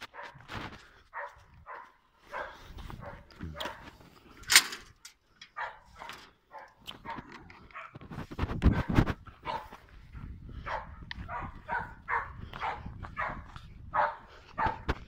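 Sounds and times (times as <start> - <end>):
dog barking: 0.0 - 0.5, 1.1 - 4.0, 5.5 - 8.0, 8.7 - 15.0.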